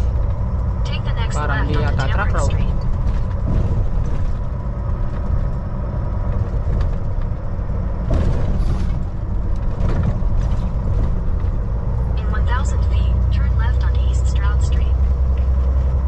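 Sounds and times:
truck engine and road rumble: 0.0s - 16.0s.

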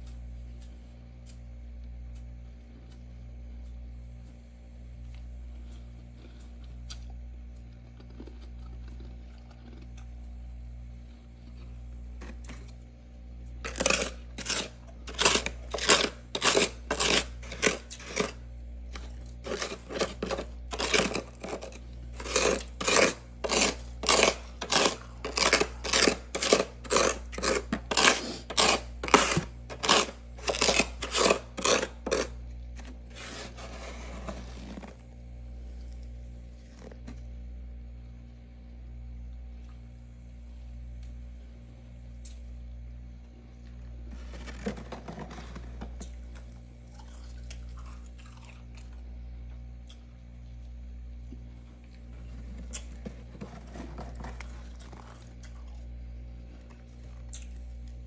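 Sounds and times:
steady low hum: 0.0s - 58.0s
plastic scoop scraping frost: 13.6s - 18.4s, 19.4s - 35.0s, 44.1s - 46.0s, 52.2s - 55.2s.

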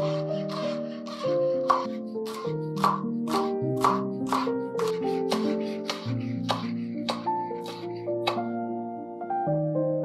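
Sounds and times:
knife slicing green onions: 0.0s - 8.4s
gentle instrumental music: 0.0s - 10.0s
knife knocking on cutting board: 0.5s - 8.4s.

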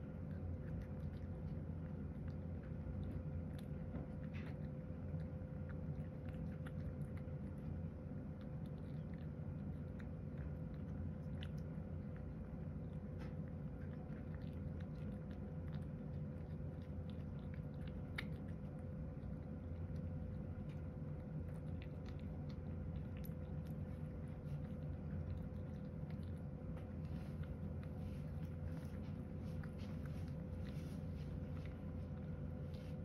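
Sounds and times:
cat chewing food: 0.0s - 33.0s
steady low hum: 0.0s - 33.0s.

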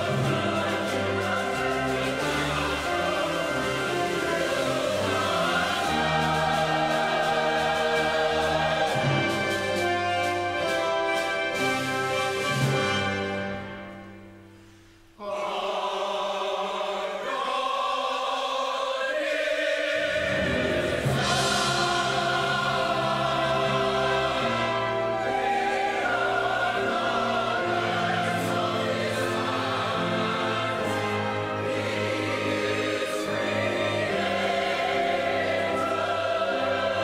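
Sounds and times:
choir singing with orchestra: 0.0s - 37.0s.

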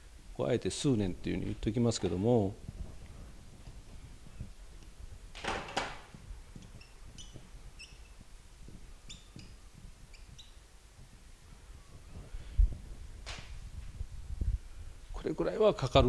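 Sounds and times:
marker squeaking on a whiteboard: 6.1s - 12.3s.

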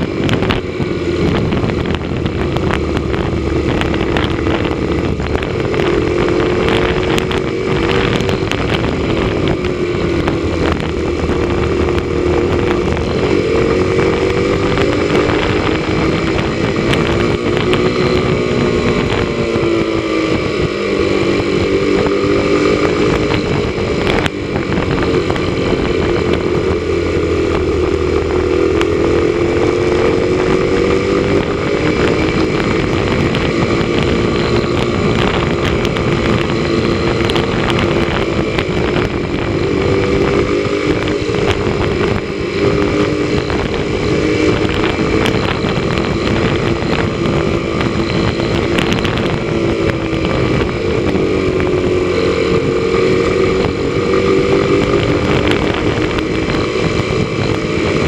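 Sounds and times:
motorcycle engine running: 0.0s - 58.0s
wind rushing: 0.0s - 58.0s.

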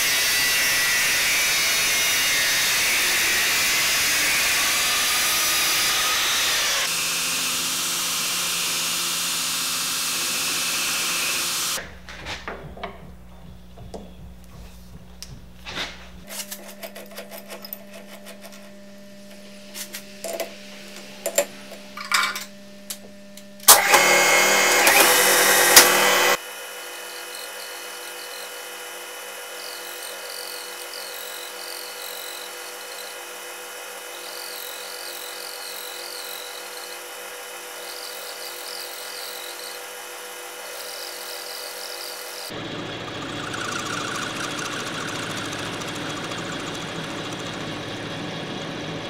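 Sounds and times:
metal lathe cutting: 0.0s - 11.8s, 23.7s - 49.0s
tool clicks and knocks: 11.8s - 15.5s
loud whirring noise: 18.6s - 28.4s, 42.4s - 49.0s.

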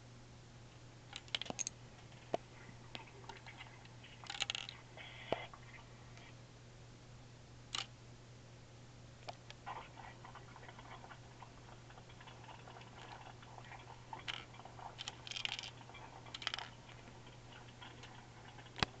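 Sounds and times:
plastic parts clicking and rattling: 1.1s - 2.4s, 4.2s - 4.8s, 14.2s - 19.0s.

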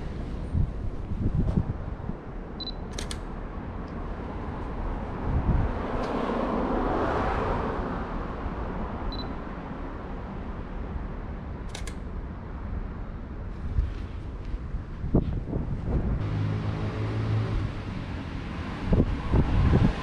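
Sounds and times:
camera focus beep: 2.6s - 2.9s
camera shutter double click: 2.9s - 3.2s, 11.7s - 12.0s.

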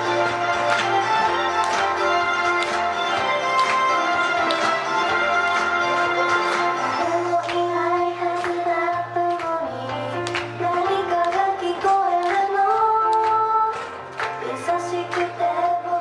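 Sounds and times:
pop backing track: 0.0s - 16.0s
women singing in unison: 7.0s - 13.8s.

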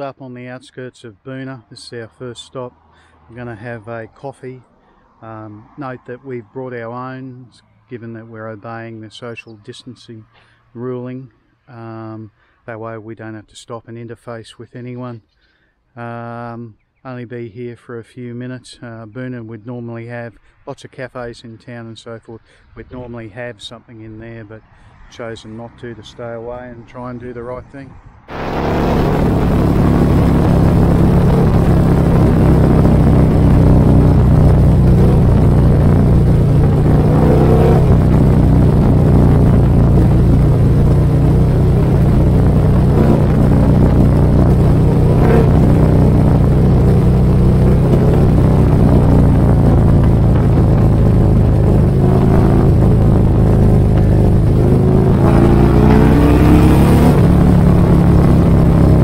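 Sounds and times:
motorcycle engine accelerating: 28.3s - 59.0s.

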